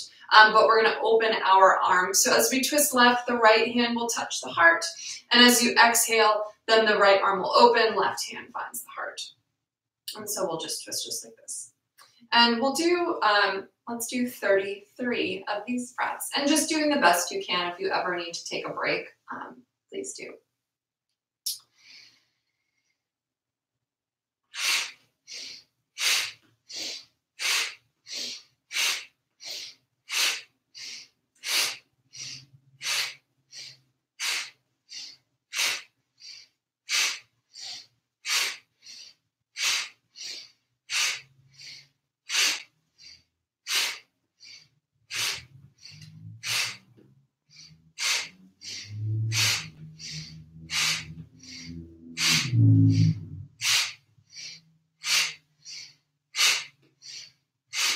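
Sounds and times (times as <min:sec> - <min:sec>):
forceful breaths through the nose: 0:24.6 - 0:57.9
low hum: 0:45.4 - 0:54.7.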